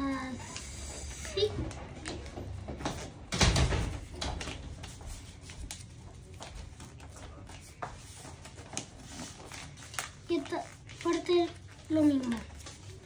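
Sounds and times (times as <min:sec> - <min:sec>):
paper being folded and creased: 0:04.1 - 0:13.0.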